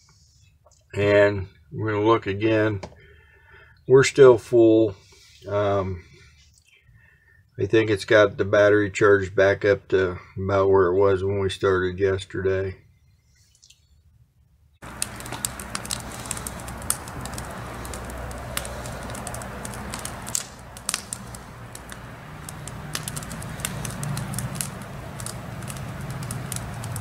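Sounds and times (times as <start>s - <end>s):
campfire crackling and popping: 14.8s - 27.0s
steady low hum: 14.8s - 27.0s.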